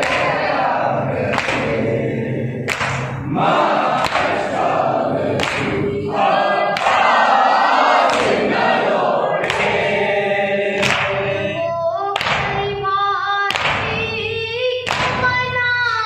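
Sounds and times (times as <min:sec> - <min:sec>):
voices joining in singing: 0:00.0 - 0:11.7
boy singing lament into microphone: 0:11.0 - 0:16.0.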